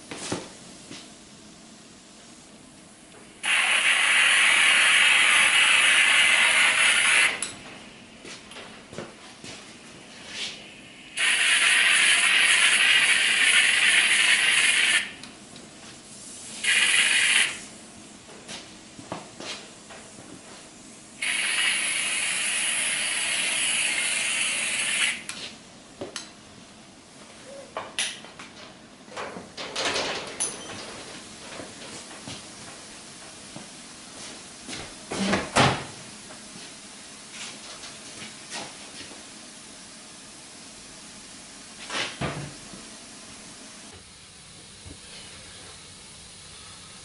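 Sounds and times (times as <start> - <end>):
compressed air hissing from spray gun: 3.4 - 7.4, 10.3 - 15.2, 16.1 - 17.8, 21.2 - 25.3.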